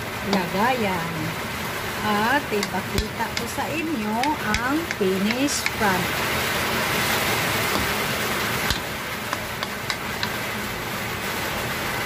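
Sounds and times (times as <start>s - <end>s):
food sizzling in a hot pan: 0.0s - 10.7s
utensil clicking against pan: 2.6s - 5.8s, 8.7s - 10.4s.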